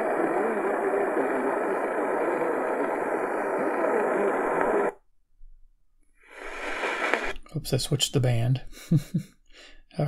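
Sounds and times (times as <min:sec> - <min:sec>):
faint voices on radio: 0:00.0 - 0:05.0
radio static hiss: 0:00.0 - 0:05.0, 0:06.2 - 0:07.4.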